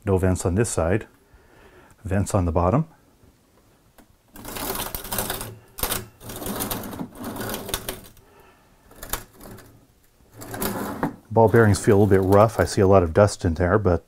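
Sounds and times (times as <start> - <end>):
drawer sliding on bearing slides: 4.4 - 8.2, 9.0 - 12.6.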